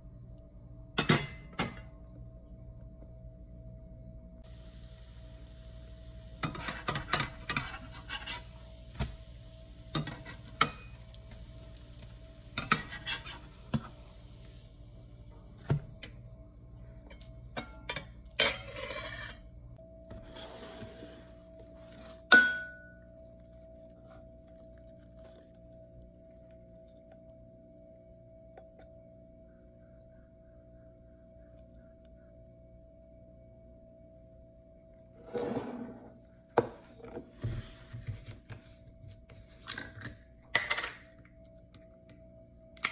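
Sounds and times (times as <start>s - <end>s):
food sizzling in a frying pan: 4.4s - 15.2s
metal spatula scraping a pan: 6.4s - 9.1s, 9.9s - 11.2s, 12.6s - 13.9s.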